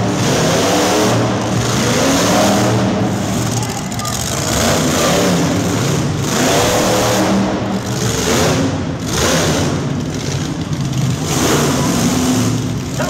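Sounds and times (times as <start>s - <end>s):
monster truck engines revving: 0.0s - 13.0s.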